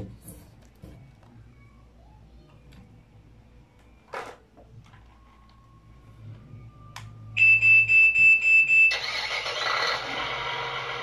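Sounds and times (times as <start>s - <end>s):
toy engine sound effect: 8.9s - 11.0s.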